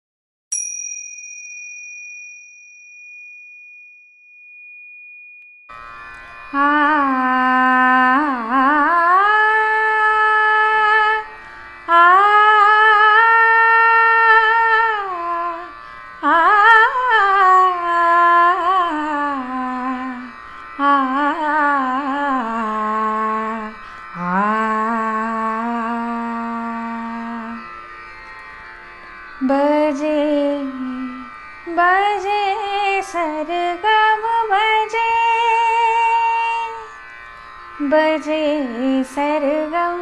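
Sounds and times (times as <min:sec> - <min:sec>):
woman singing: 0:06.5 - 0:27.7, 0:29.4 - 0:37.0, 0:37.8 - 0:40.0.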